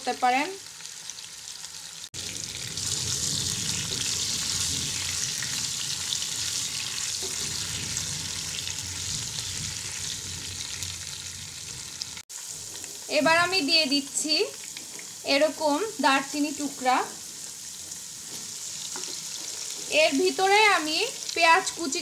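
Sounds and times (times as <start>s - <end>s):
potatoes sizzling in hot oil: 0.0s - 22.0s
wooden spatula stirring in pan: 6.4s - 10.7s, 17.1s - 20.1s.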